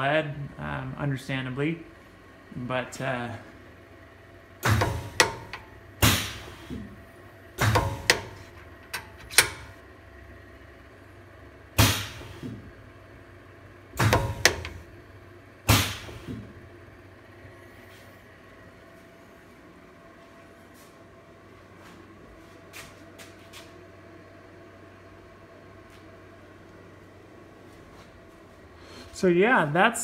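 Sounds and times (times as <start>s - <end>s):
air hiss bursts: 6.0s - 6.8s, 11.8s - 12.5s
drawbar clicks and pops: 14.0s - 14.8s.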